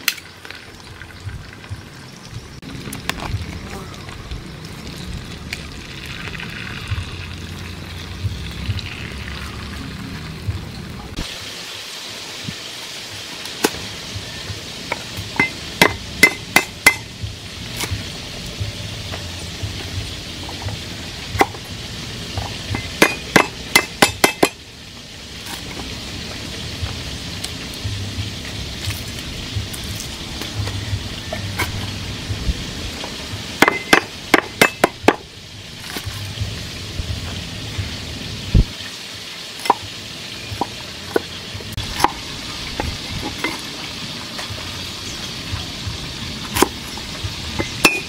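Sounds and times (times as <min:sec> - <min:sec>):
cleaver chopping on wooden block: 0:23.0 - 0:24.6.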